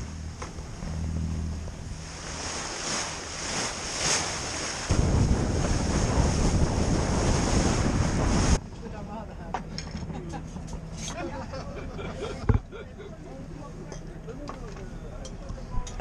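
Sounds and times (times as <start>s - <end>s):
wind buffeting microphone: 0.0s - 8.7s
water rushing along a hull: 0.0s - 15.9s.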